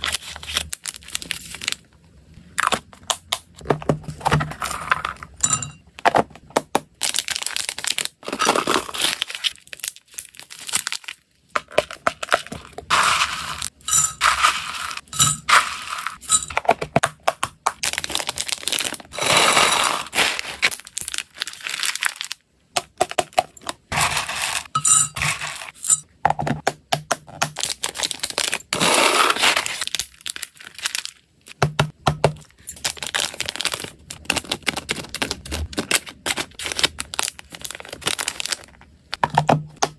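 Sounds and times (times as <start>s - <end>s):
plastic bags crinkling: 0.0s - 1.9s, 7.0s - 13.7s, 17.8s - 22.4s, 27.6s - 31.5s, 32.5s - 39.2s
dry treats rattling in plastic boxes: 9.9s - 25.8s, 32.7s - 39.6s.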